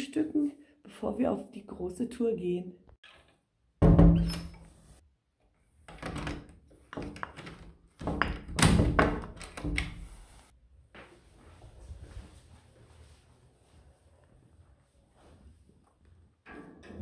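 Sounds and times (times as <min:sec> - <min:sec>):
heavy door thunk: 0:03.8 - 0:04.4.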